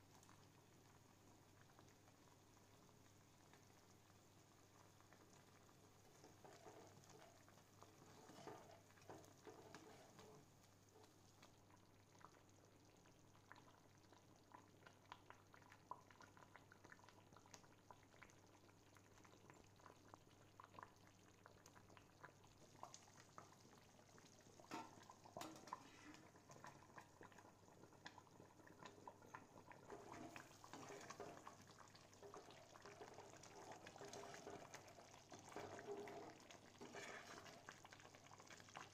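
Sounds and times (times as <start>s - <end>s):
gravy bubbling and popping: 0.0s - 38.9s.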